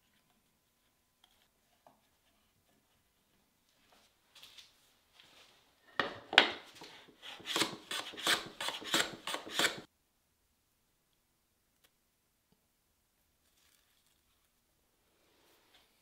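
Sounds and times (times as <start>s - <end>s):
hand tool scraping wooden board: 6.0s - 9.9s.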